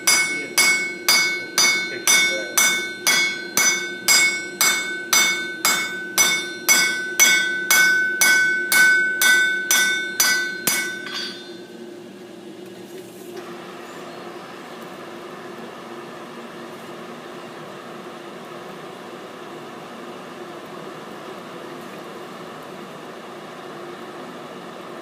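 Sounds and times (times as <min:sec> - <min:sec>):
hammer striking iron on anvil: 0:00.0 - 0:11.7.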